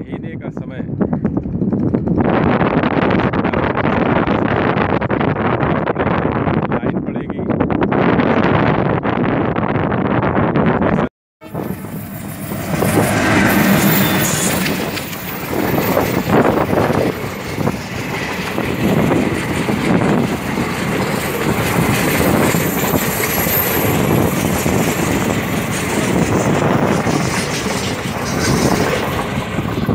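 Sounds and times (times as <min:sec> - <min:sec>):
train wheels clattering on track: 0:11.9 - 0:29.9.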